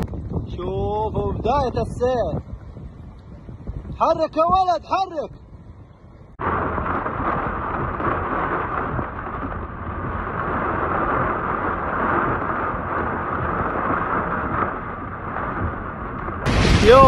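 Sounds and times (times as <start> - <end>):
low rumble: 0.0 - 17.0
wind: 0.0 - 17.0
heavy rain: 6.4 - 17.0.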